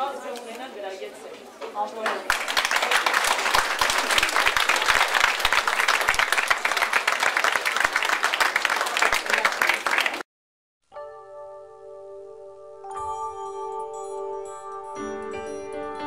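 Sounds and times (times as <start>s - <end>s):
audience applauding: 2.0s - 10.3s.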